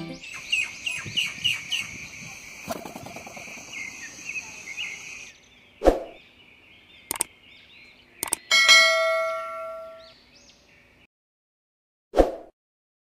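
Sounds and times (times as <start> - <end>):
faint bird chirps: 0.2 - 8.6
sharp clicks: 7.1 - 7.3, 8.2 - 8.5
notification bell ding: 8.5 - 10.0.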